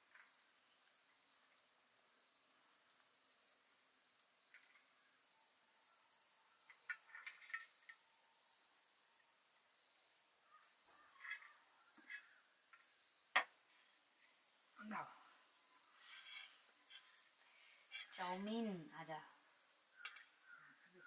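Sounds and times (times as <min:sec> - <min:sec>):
high-pitched insect chirr: 0:00.1 - 0:13.5.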